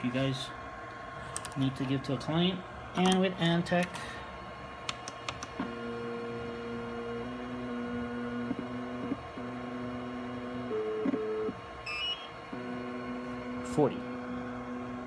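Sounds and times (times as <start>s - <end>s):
motor whine stepping in pitch: 5.6s - 15.0s.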